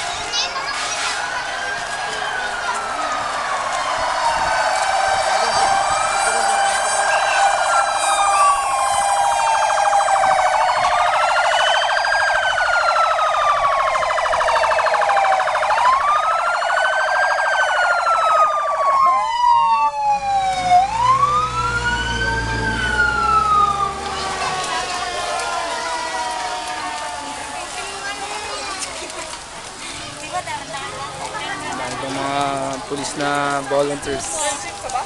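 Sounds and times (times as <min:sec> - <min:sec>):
fire truck siren wailing: 0:00.0 - 0:35.0
truck engine rumble: 0:00.0 - 0:35.0.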